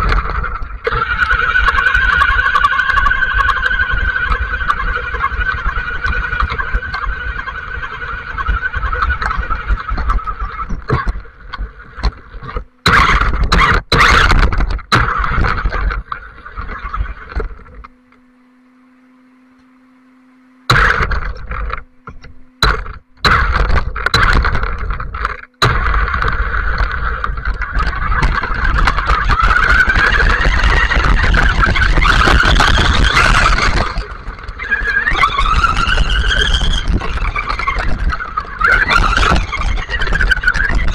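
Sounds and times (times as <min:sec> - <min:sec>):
tyres on wet gravel: 0:00.0 - 0:13.4, 0:20.7 - 0:40.9
toy car motor whining: 0:00.0 - 0:17.9, 0:20.7 - 0:40.9.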